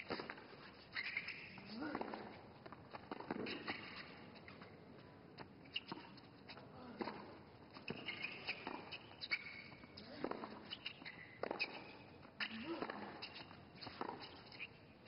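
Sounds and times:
shoes squeaking on court: 0.0s - 15.0s
ball bouncing: 1.2s - 4.6s, 7.0s - 13.2s
racquets striking tennis ball: 7.0s - 13.3s, 13.9s - 14.4s.

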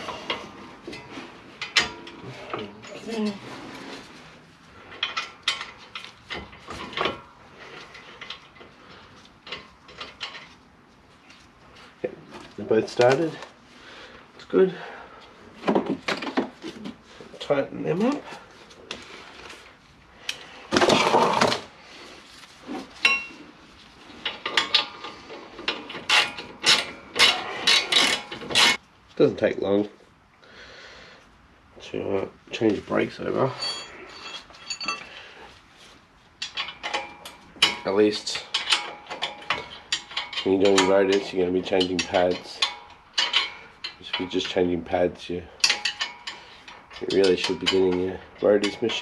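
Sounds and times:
metal tools rattling: 0.0s - 3.4s, 4.8s - 10.7s, 22.9s - 23.4s, 24.1s - 28.8s, 33.2s - 35.3s, 36.4s - 49.0s
metal clinks and scrapes: 0.0s - 13.4s, 15.6s - 28.8s, 32.7s - 49.0s
ringing metal clink: 33.5s - 35.1s.

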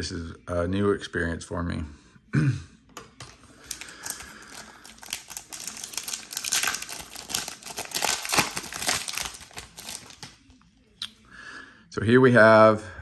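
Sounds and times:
plastic bag rustling and crinkling: 3.4s - 10.5s.

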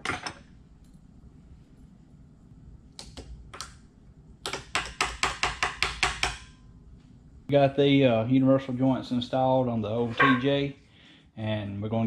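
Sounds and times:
hammer tapping metal: 4.4s - 6.6s.

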